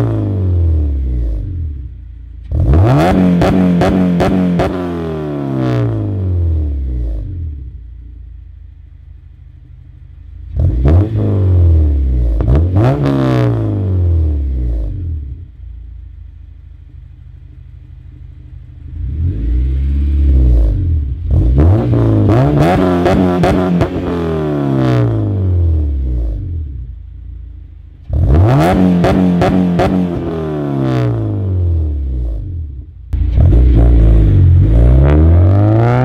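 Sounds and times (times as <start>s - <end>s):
car engine accelerating hard: 2.4s - 7.6s, 10.5s - 15.4s, 18.8s - 26.8s, 28.0s - 36.0s.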